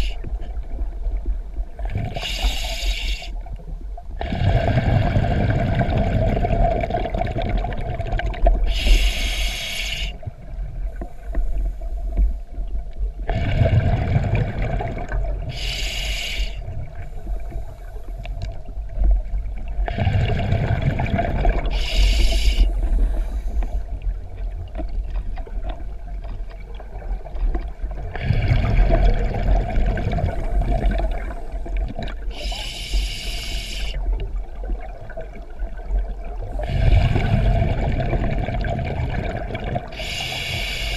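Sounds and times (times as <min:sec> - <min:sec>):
regulator hiss: 0:02.2 - 0:03.4, 0:08.7 - 0:10.2, 0:15.5 - 0:16.6, 0:21.7 - 0:23.8, 0:32.3 - 0:34.0, 0:40.0 - 0:40.9
bubbles rumbling underwater: 0:03.5 - 0:09.1, 0:12.2 - 0:15.5, 0:18.4 - 0:32.5, 0:34.0 - 0:40.4.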